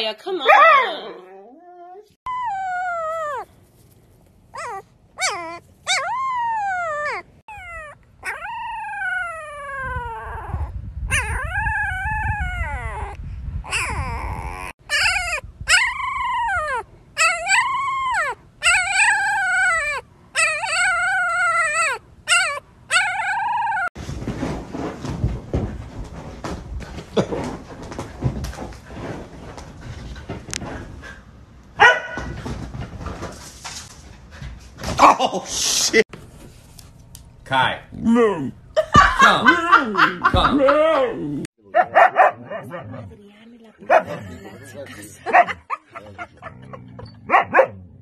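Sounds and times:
rustling: 0:03.2 - 0:04.8, 0:24.0 - 0:31.2.

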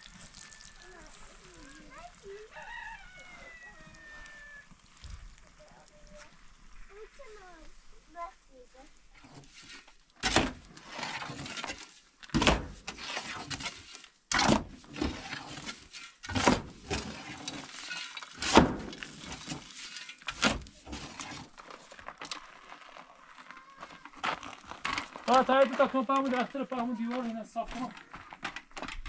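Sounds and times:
shovel scraping sand: 0:09.2 - 0:22.4
sand pouring into metal wheelbarrow: 0:10.6 - 0:12.1, 0:12.8 - 0:14.2, 0:14.8 - 0:23.0.

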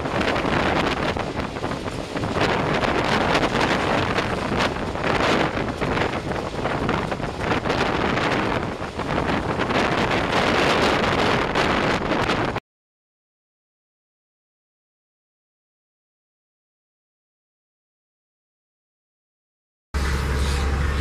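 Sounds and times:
train running on track: 0:00.0 - 0:12.6, 0:20.0 - 0:21.0
wind buffeting microphone: 0:00.0 - 0:12.6.

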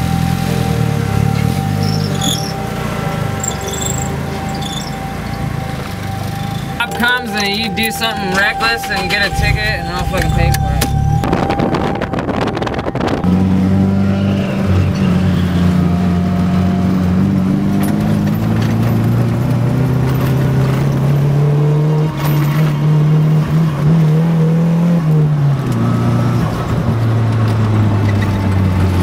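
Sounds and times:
car engine revving: 0:00.0 - 0:29.0.

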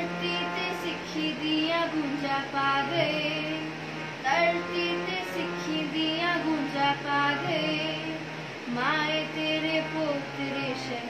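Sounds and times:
girl singing slow melody: 0:00.0 - 0:11.0
steady held drone: 0:00.0 - 0:11.0.

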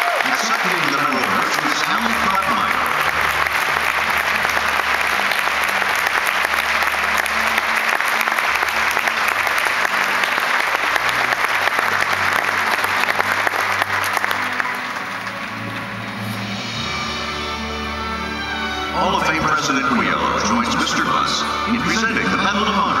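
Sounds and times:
large audience applauding: 0:00.0 - 0:17.0
music playing: 0:00.0 - 0:23.0.

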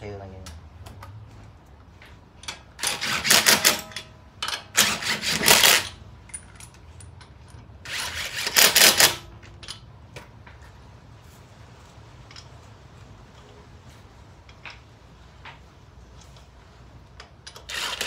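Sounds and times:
impact wrench rapid clicking: 0:02.8 - 0:06.0, 0:07.9 - 0:09.3, 0:17.5 - 0:18.0.

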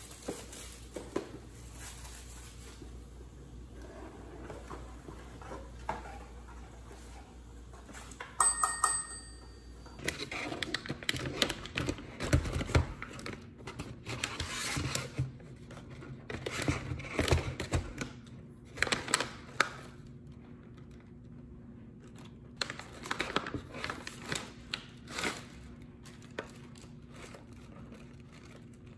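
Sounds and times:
metallic chime: 0:08.4 - 0:09.8.

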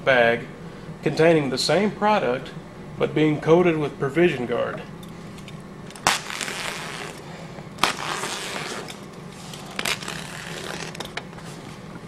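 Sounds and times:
knife slicing plastic bag: 0:06.0 - 0:07.2, 0:07.8 - 0:08.9
scratchy tearing: 0:06.0 - 0:07.2, 0:07.8 - 0:11.0
crackling rips: 0:06.0 - 0:11.2.

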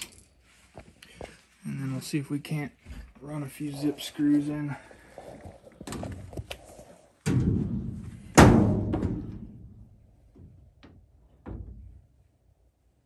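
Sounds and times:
heavy metal thumps: 0:07.2 - 0:12.1.

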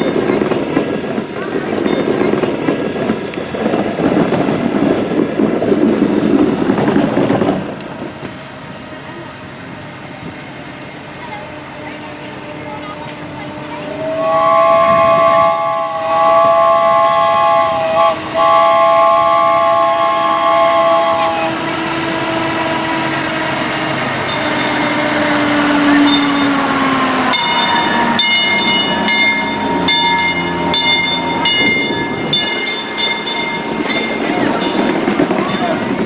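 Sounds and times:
chord horn blasts: 0:11.6 - 0:23.0
bell ringing: 0:26.0 - 0:26.6, 0:27.3 - 0:35.8.

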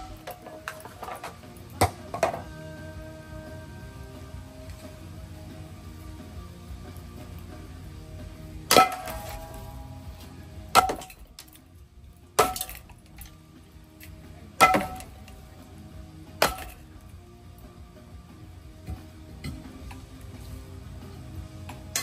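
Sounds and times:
sharp metallic clank: 0:00.0 - 0:02.4, 0:08.7 - 0:11.7, 0:12.3 - 0:13.4, 0:14.6 - 0:15.4, 0:16.3 - 0:17.0
ceiling fan running: 0:00.0 - 0:22.0.

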